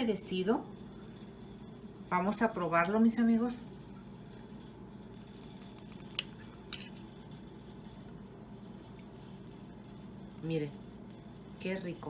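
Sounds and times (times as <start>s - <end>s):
faint room hum: 0.0s - 12.0s
fork clinking against a plate: 6.2s - 7.0s.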